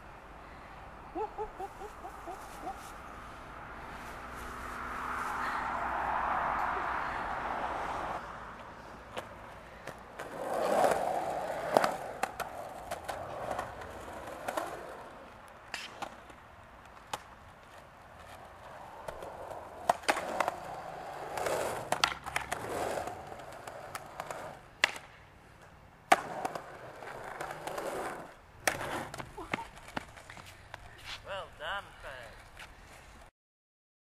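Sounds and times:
skateboard wheels rolling on concrete: 1.6s - 33.3s
skateboard clacking on ground: 8.6s - 31.2s.

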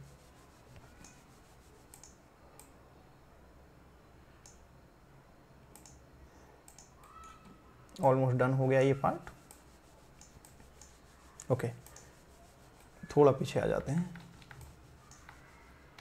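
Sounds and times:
mouse and keyboard clicks: 13.8s - 16.0s.

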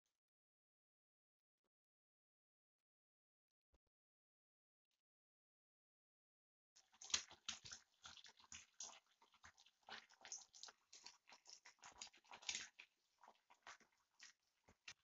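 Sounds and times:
eggs frying in oil: 6.8s - 15.0s.

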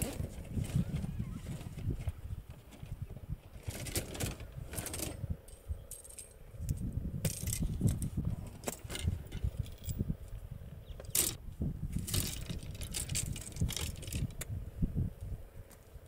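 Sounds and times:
fishing tackle clicks and rattles: 11.1s - 11.4s, 12.0s - 14.5s.

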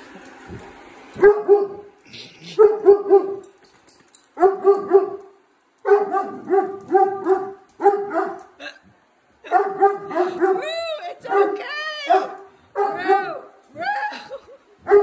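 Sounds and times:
dog barking: 1.2s - 1.9s, 2.6s - 3.4s, 4.4s - 8.6s, 9.4s - 10.7s, 11.3s - 13.5s.

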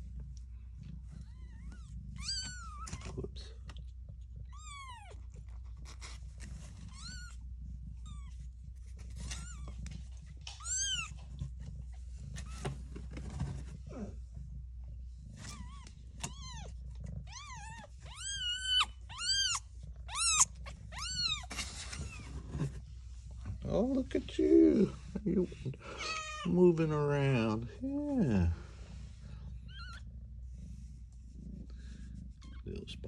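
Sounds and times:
cat purring: 0.0s - 33.0s
kittens mewing: 15.4s - 22.8s, 25.8s - 26.6s.

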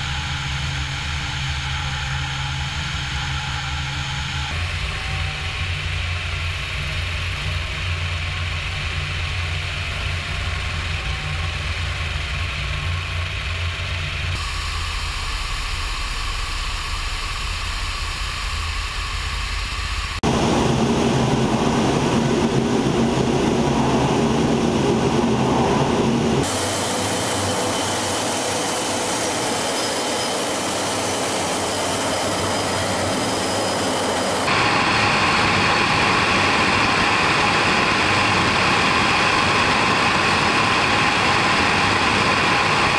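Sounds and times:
helicopter engines and rotors: 0.0s - 42.9s
wind noise: 20.2s - 28.6s.

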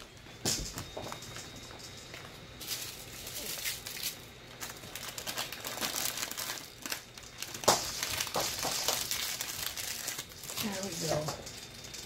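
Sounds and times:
packaging crinkling: 2.6s - 11.7s.

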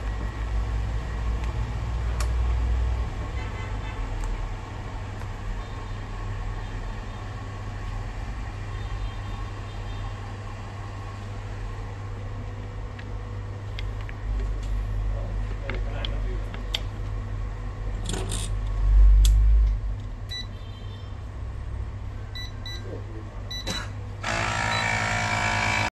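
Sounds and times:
machine electrical hum: 0.0s - 25.9s
short beeps: 22.3s - 22.9s, 23.5s - 23.8s.

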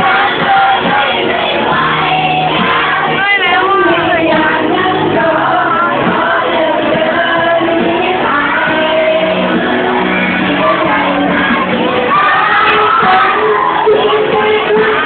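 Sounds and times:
loud amplified backing music: 0.0s - 15.0s
person singing into microphone: 0.0s - 15.0s
audience shouting: 9.8s - 15.0s.

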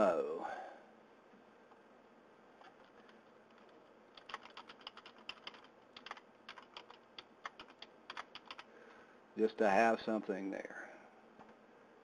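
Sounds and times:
typing on computer keyboard: 2.6s - 8.7s.

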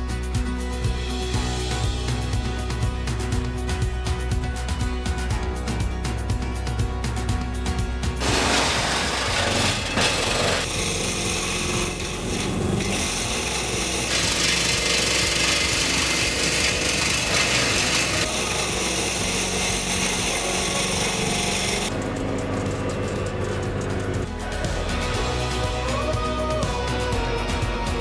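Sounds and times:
woodchipper grinding branches: 8.2s - 25.0s.

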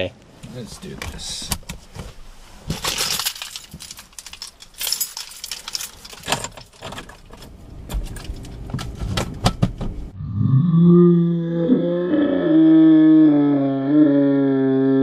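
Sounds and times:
rustling: 0.3s - 9.4s
sharp clicks and knocks: 6.0s - 10.0s.

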